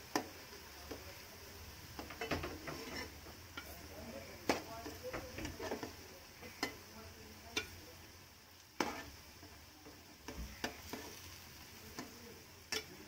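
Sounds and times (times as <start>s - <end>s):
oil sizzling: 0.0s - 13.0s
skimmer clinking against a pan: 11.9s - 13.0s.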